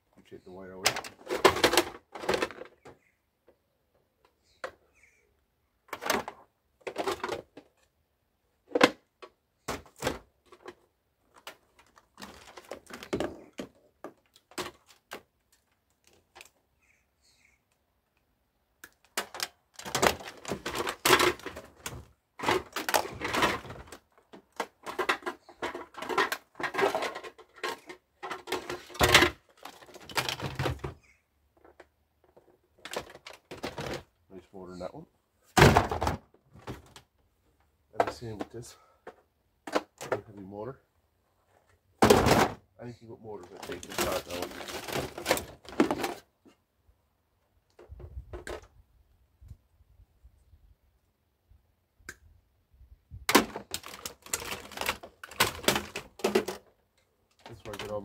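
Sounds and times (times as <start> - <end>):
plastic appliances clattering: 0.8 - 2.9, 5.9 - 7.7, 9.7 - 15.2, 19.1 - 31.0, 31.6 - 34.1, 43.4 - 46.3, 53.3 - 56.7, 57.3 - 58.0.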